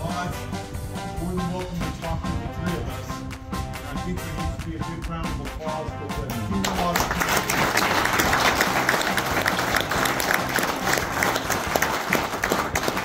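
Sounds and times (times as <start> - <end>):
small group applauding: 6.6 - 13.0.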